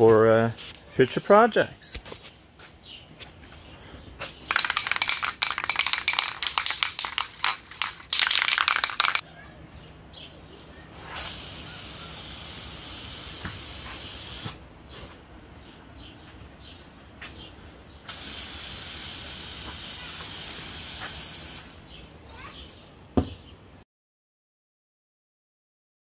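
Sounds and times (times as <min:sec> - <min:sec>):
aerosol can spraying: 0:04.5 - 0:09.2, 0:11.2 - 0:14.6, 0:18.1 - 0:21.7.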